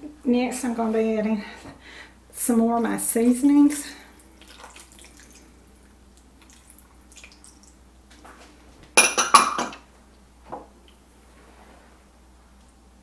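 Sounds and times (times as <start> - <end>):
soy sauce trickling into pot: 4.1 - 7.8.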